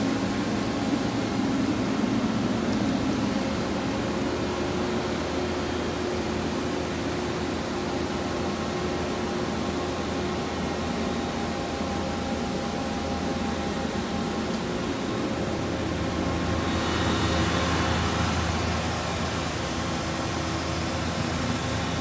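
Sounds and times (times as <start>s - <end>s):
machine whirring hum: 0.0s - 22.0s.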